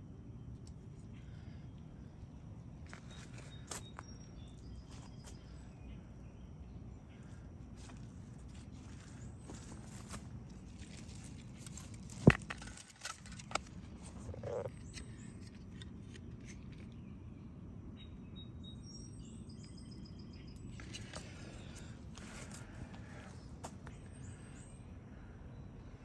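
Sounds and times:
faint bird chirps: 0.4 - 11.8.

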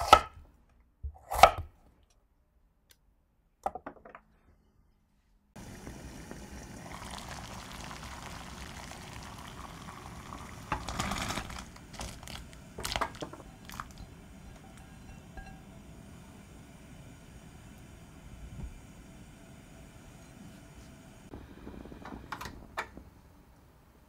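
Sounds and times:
water boiling in a saucepan: 5.6 - 23.3.

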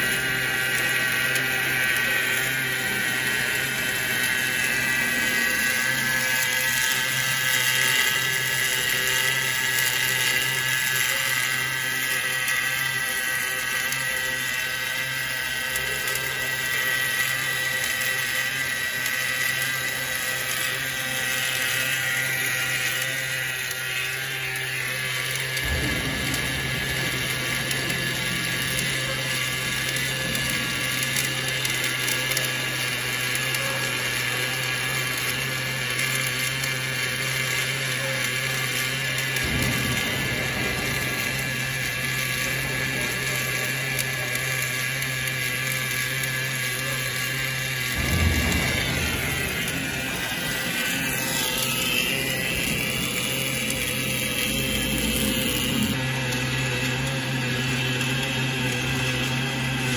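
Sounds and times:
machine whine: 0.0 - 59.9
welding arc buzzing hiss: 0.0 - 59.9
deep low rumble: 47.9 - 55.9.

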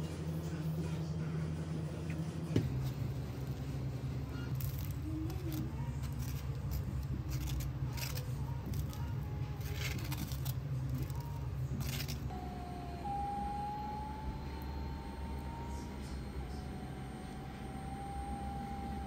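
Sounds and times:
low machine hum: 0.0 - 19.0
faint rising whine: 11.1 - 19.0.

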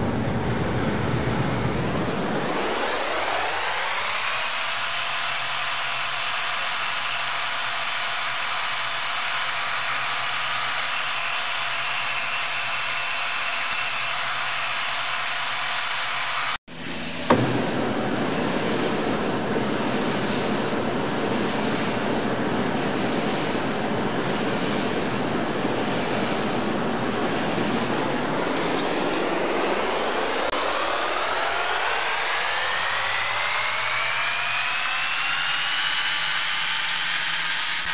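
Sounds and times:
metal lathe whining: 1.8 - 16.6
knock: 17.3 - 17.7.

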